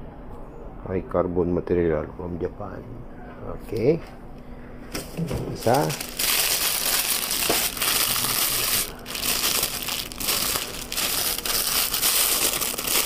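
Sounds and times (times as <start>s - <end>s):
plastic packaging crinkling: 5.0s - 13.0s.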